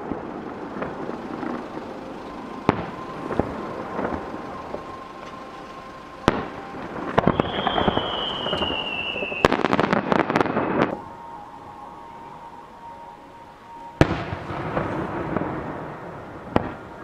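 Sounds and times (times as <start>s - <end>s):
fireworks bangs and pops: 0.0s - 5.4s, 6.2s - 11.0s
firework crackles: 0.0s - 17.0s
firework whistle falling in pitch: 0.0s - 17.0s.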